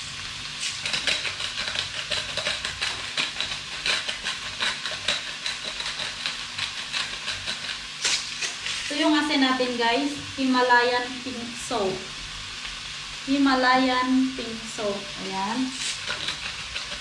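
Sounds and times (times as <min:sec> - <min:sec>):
salt grinder grinding: 0:00.0 - 0:09.3, 0:15.6 - 0:17.0
pork frying in a pan: 0:00.0 - 0:17.0.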